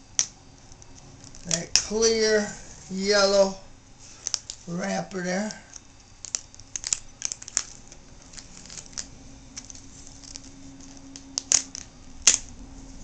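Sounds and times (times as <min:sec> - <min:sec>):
adhesive tape peeling crackles: 0:00.2 - 0:02.1, 0:04.1 - 0:12.6.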